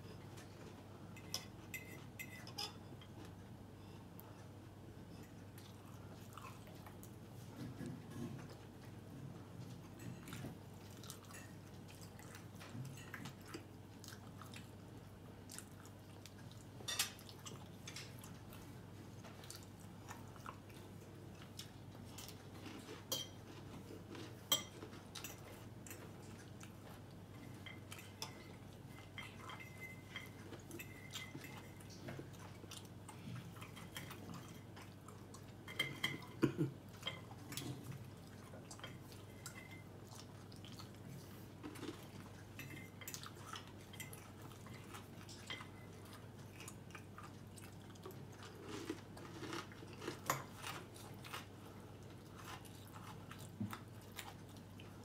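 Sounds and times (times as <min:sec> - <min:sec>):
chewing: 0:00.1 - 0:55.0.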